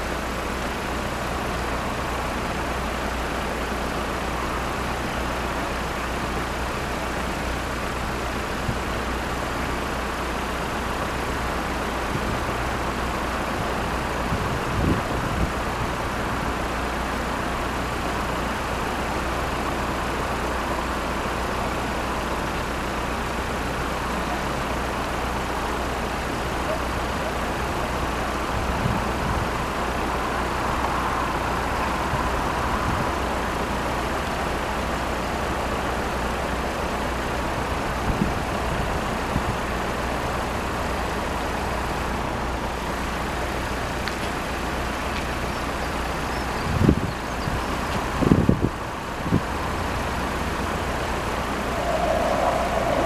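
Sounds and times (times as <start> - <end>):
road traffic rumble: 0.0 - 53.0.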